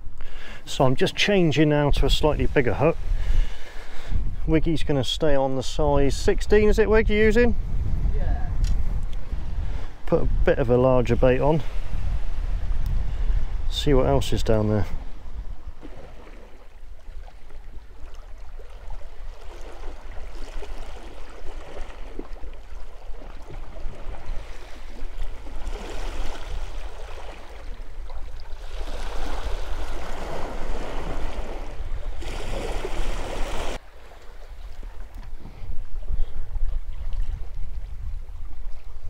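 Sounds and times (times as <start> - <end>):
low wind rumble: 0.0 - 18.5, 34.5 - 39.0
sea water sloshing against rocks: 15.7 - 35.4.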